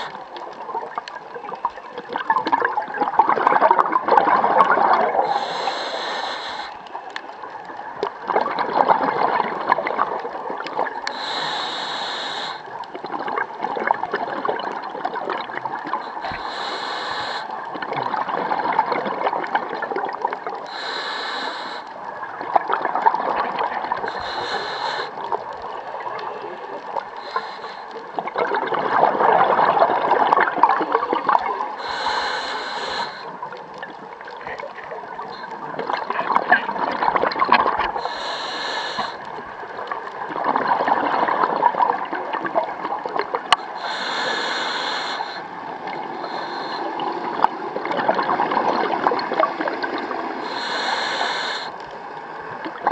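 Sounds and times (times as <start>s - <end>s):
regulator breathing hiss: 0.0s - 0.2s, 5.2s - 7.0s, 11.0s - 12.8s, 16.0s - 17.6s, 20.6s - 22.0s, 24.0s - 25.4s, 27.0s - 28.0s, 31.7s - 33.5s, 38.0s - 39.3s, 43.6s - 47.7s, 50.2s - 52.0s
underwater bubbling: 0.0s - 52.9s.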